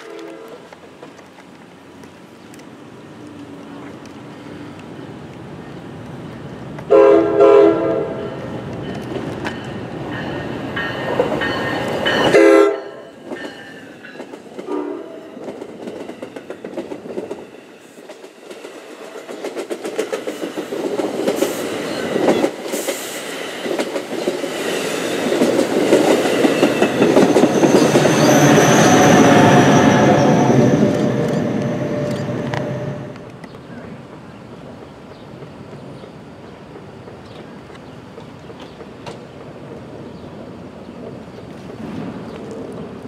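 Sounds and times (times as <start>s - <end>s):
train horn: 0.0s - 0.7s, 6.9s - 8.4s, 12.3s - 13.1s, 14.6s - 15.4s
train rumbling past: 0.0s - 43.0s
high thin squeal: 27.4s - 33.1s
wheels clicking over rail joints: 31.0s - 40.2s.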